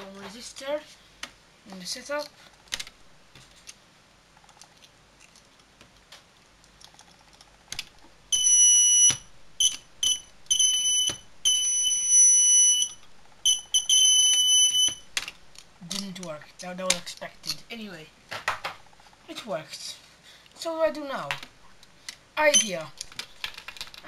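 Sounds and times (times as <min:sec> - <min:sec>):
shrill electronic alarm buzzing: 0:08.3 - 0:15.1.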